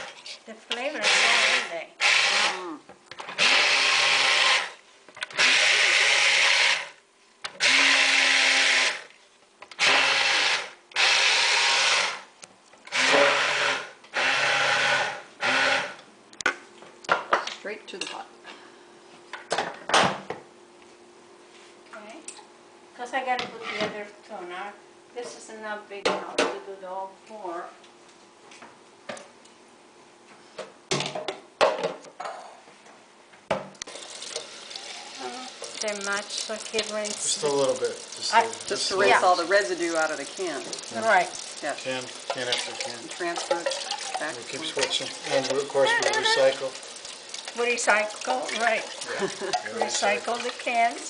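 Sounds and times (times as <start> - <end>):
immersion blender pureeing tomatoes: 0.9 - 12.3, 12.9 - 16.0, 33.8 - 51.0
kitchen tap running: 3.3 - 15.9, 33.8 - 51.0
cans and containers clattering: 33.9 - 50.9.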